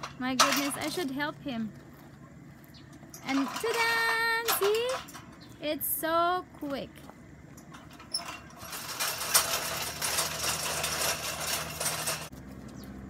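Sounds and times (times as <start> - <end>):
dense crackling rustle: 7.5 - 13.0.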